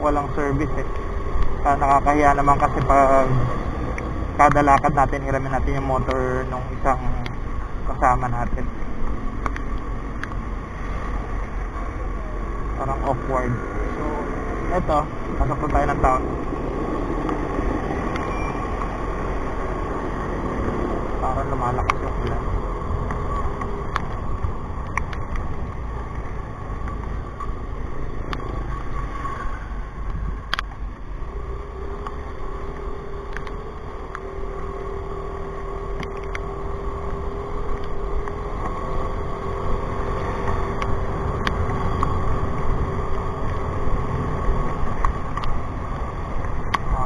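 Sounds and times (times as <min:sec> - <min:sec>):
wind and road noise: 0:00.0 - 0:47.0
motorcycle engine: 0:30.6 - 0:47.0.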